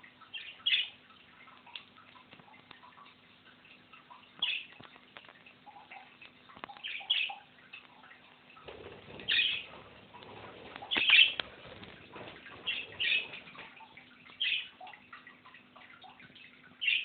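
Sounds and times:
light clicks and taps: 0:01.4 - 0:16.5
low rustling: 0:08.7 - 0:14.1.

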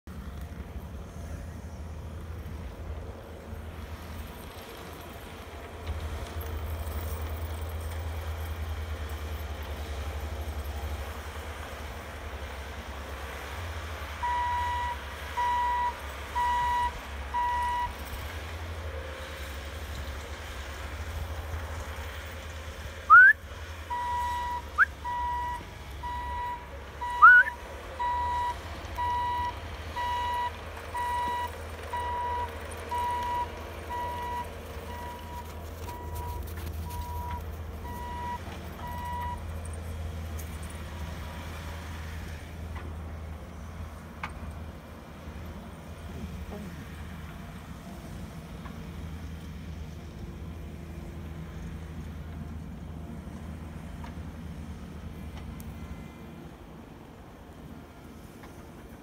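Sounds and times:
diesel engines running: 0:00.0 - 0:59.0
reversing alarm beeping: 0:14.2 - 0:18.0, 0:23.1 - 0:39.4.

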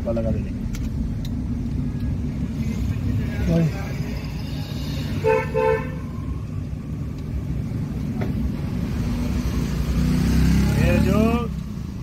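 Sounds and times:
car engine and road noise: 0:00.0 - 0:12.0
car horn toots: 0:05.2 - 0:06.1.

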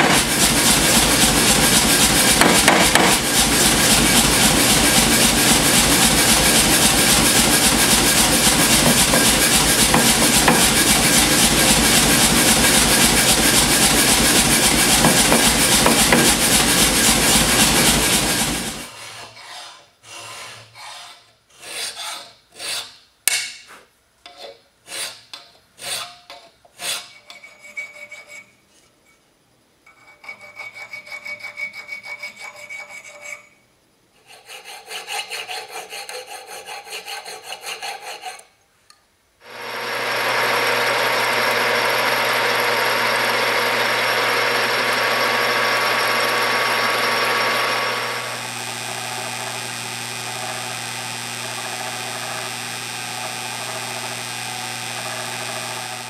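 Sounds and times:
drill press motor running: 0:00.0 - 0:18.9, 0:39.5 - 0:56.0
hand file rasping on steel: 0:00.0 - 0:23.0, 0:24.3 - 0:28.5, 0:29.9 - 0:33.6, 0:34.2 - 0:38.5.

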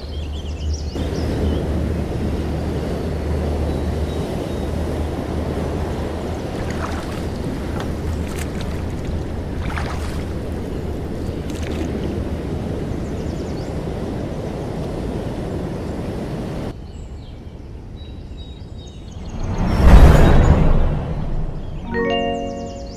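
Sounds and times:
river water: 0:00.0 - 0:16.4, 0:21.8 - 0:22.9
wind: 0:00.0 - 0:22.9
low rumble: 0:19.2 - 0:21.8
faint high chirping: 0:21.6 - 0:22.9.

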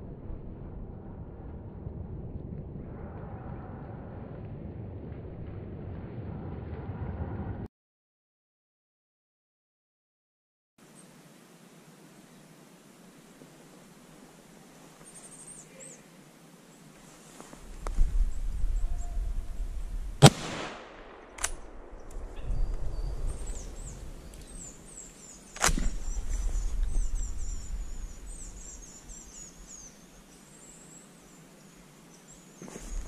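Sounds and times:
rifle shots with echo: 0:20.2 - 0:22.4.

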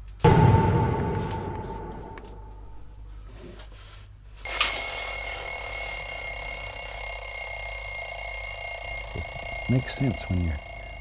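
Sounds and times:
high-pitched electronic alarm: 0:04.5 - 0:11.0.

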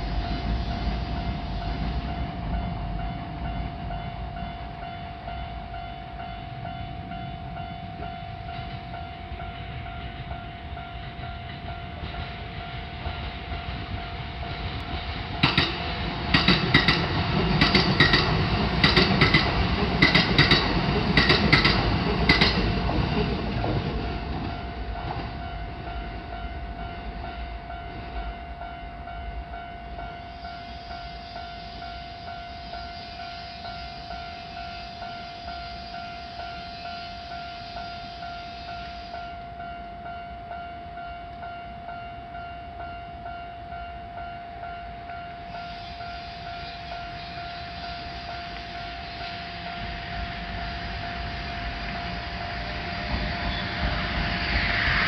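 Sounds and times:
crossing warning bell: 0:00.0 - 0:55.0
train rumble: 0:00.0 - 0:55.0
train wheels clicking over rail joints: 0:14.7 - 0:25.4.

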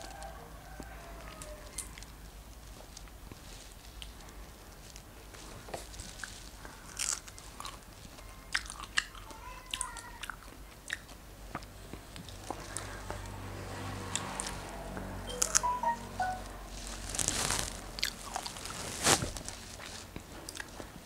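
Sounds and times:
person chewing strawberries: 0:06.0 - 0:12.9, 0:18.0 - 0:18.8, 0:19.8 - 0:21.0.

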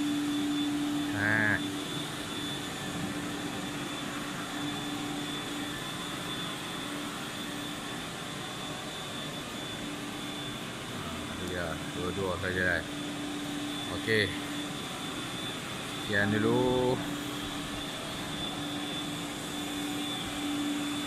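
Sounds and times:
carpet cleaning machines droning: 0:00.0 - 0:21.0
faint high whine: 0:00.0 - 0:21.0
person calling out: 0:01.1 - 0:01.6.

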